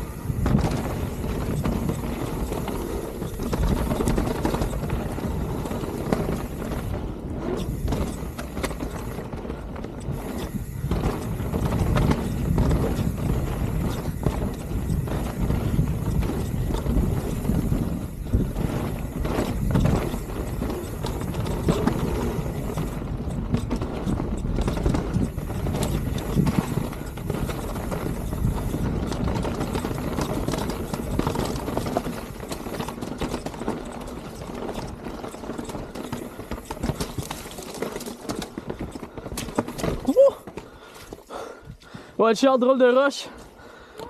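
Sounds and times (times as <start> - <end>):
wind on microphone: 0.0 - 32.8
bike clattering and rattling: 0.0 - 42.0
bike tyres on dirt and rock: 0.0 - 44.0.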